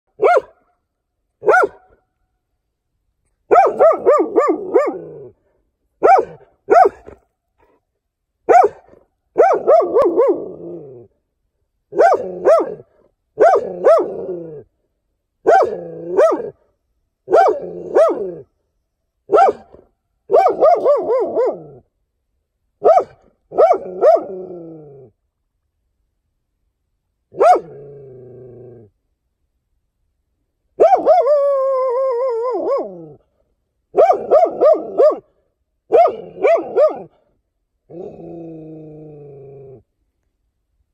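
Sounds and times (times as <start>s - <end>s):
dog barking: 0.2s - 0.6s, 1.4s - 2.0s, 3.5s - 5.2s, 6.0s - 7.2s, 8.5s - 10.4s, 11.9s - 14.2s, 15.4s - 16.6s, 17.3s - 18.4s, 19.3s - 21.8s, 22.8s - 24.3s, 27.3s - 27.7s, 30.8s - 31.4s, 33.9s - 35.3s, 35.9s - 37.2s.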